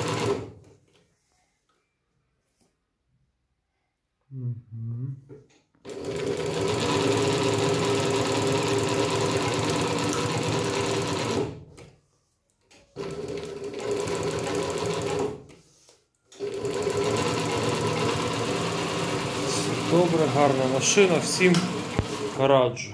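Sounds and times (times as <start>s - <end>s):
industrial sewing machine stitching: 0.0s - 0.6s, 5.8s - 11.6s, 13.0s - 15.4s, 16.4s - 22.7s.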